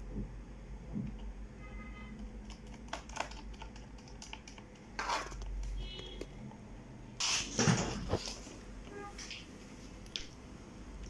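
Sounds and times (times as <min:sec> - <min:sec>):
laptop clattering: 0:02.2 - 0:06.3.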